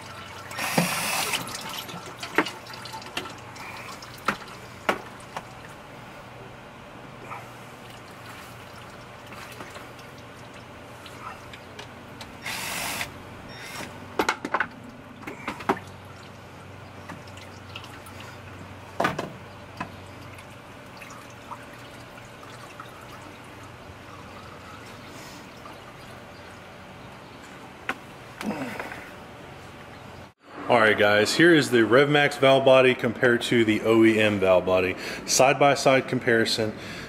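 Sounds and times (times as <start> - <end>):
fluid dripping into plastic bucket: 0.0 - 5.8, 7.8 - 12.0, 17.0 - 18.8
cordless driver running: 0.6 - 1.5, 12.3 - 13.9.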